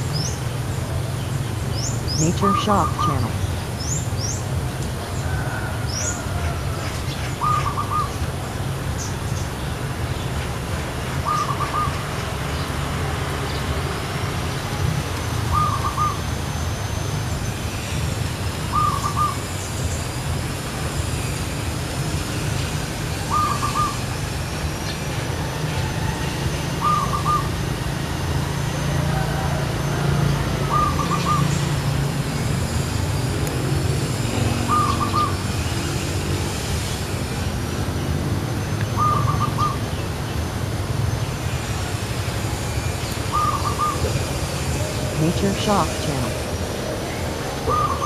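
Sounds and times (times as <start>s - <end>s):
dove cooing: 7.4s - 8.2s, 15.5s - 16.2s, 18.7s - 19.4s, 23.2s - 24.0s, 26.7s - 27.6s, 28.8s - 31.6s, 34.2s - 35.6s, 39.0s - 39.8s, 43.3s - 45.2s, 47.6s - 48.0s.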